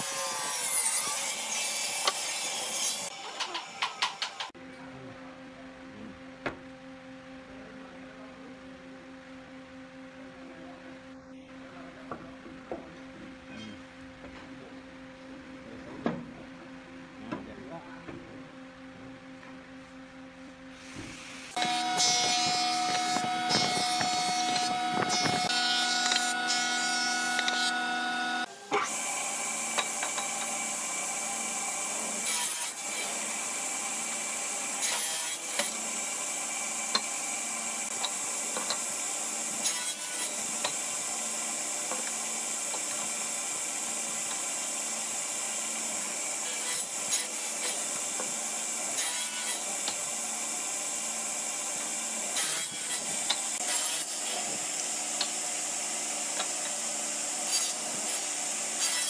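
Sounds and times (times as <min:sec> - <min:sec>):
thickness planer humming: 0:00.0 - 0:59.0
table saw whining: 0:21.0 - 0:59.0.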